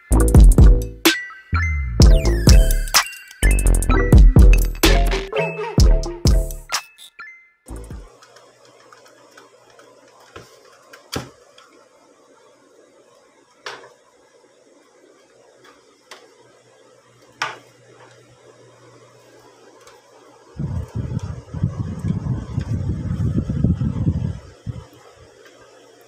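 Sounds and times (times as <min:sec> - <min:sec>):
faint low hum: 0:19.8 - 0:25.3.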